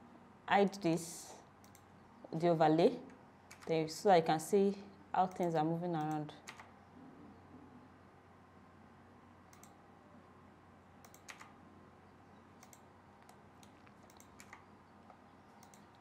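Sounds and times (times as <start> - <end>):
quiet room hiss: 0.0 - 16.0
computer keyboard and mouse clicks: 3.5 - 3.7, 5.3 - 6.7, 9.5 - 9.8, 11.0 - 11.6, 12.6 - 16.0.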